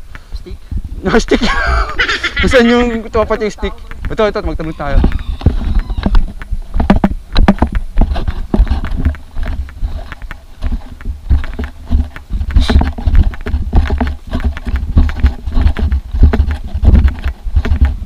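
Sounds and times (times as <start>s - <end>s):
footsteps on grassy dirt trail: 0.0s - 18.0s
wind rumble on microphone: 0.0s - 18.0s.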